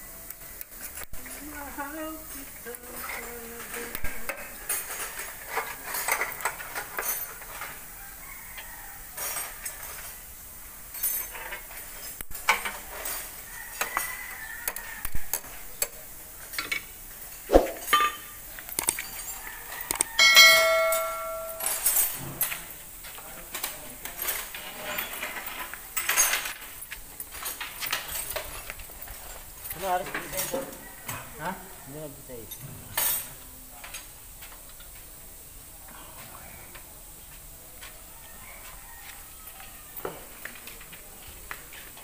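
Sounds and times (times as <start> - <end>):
metal parts and tools clinking: 2.3 - 7.8, 9.2 - 10.2, 10.9 - 14.2, 16.5 - 22.7, 23.5 - 30.7
struck metal part ringing: 17.7 - 18.4, 20.0 - 22.1.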